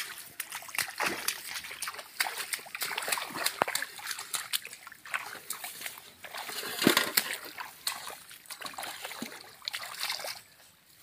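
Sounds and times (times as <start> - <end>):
feet splashing through water: 0.0 - 10.6.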